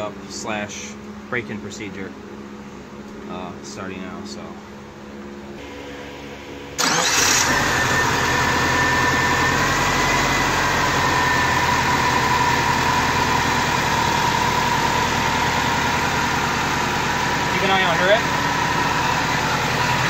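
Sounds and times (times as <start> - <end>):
car engine starting and idling: 5.6 - 20.0.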